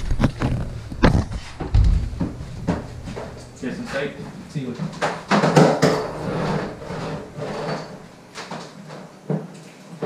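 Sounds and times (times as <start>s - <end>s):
refrigerator clattering: 0.0s - 8.2s
sharp knocks: 0.5s - 8.0s
scuffing: 0.6s - 4.2s.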